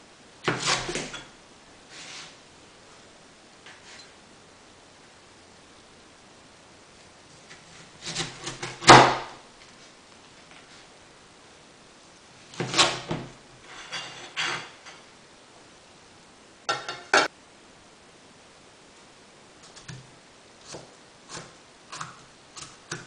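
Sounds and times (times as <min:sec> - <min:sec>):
knife cutting through melon: 0:00.4 - 0:01.1.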